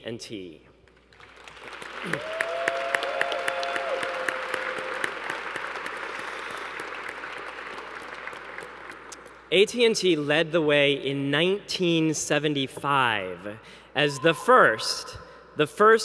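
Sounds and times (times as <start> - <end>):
audience applauding: 1.1 - 9.4
crowd cheering: 1.5 - 9.2.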